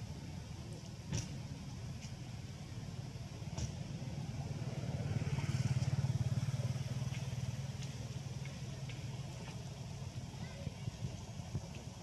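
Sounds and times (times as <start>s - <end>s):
motorcycle engine passing by: 4.3s - 8.4s.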